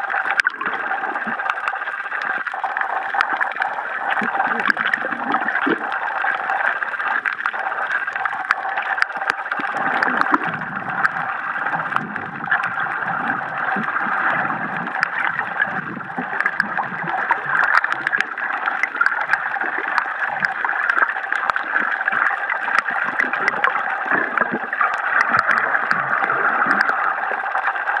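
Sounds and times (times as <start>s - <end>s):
muffled underwater gurgling: 0.0s - 28.0s.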